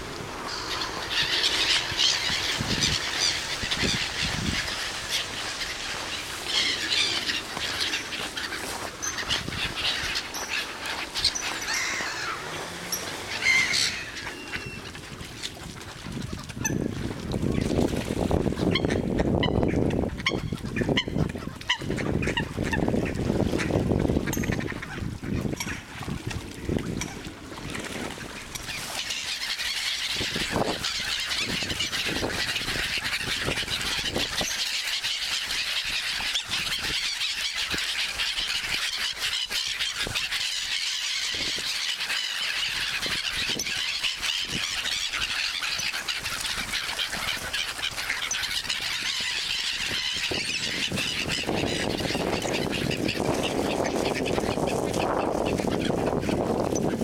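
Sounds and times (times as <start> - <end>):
gulls calling: 0.0 - 57.0
low uneven bird sounds: 0.2 - 15.0.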